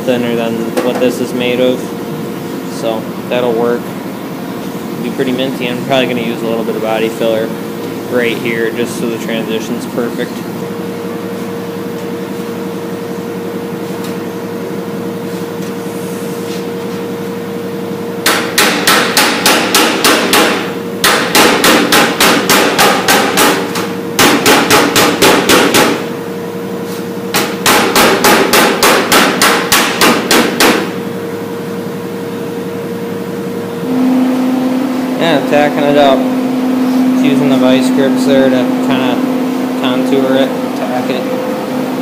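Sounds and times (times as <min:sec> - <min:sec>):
steady hum: 0:00.0 - 0:42.0
mallet beating sheet metal: 0:18.2 - 0:26.1, 0:27.3 - 0:31.0.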